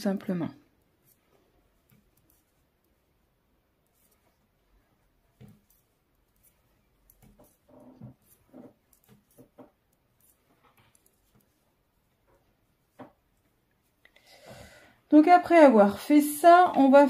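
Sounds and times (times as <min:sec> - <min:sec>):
knitting needles clicking: 0:00.7 - 0:04.5, 0:05.3 - 0:14.1.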